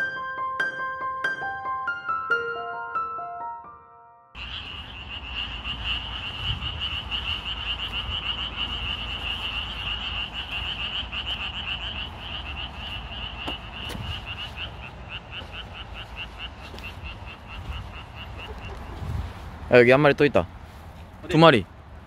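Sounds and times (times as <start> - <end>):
frogs calling: 4.4 - 19.4.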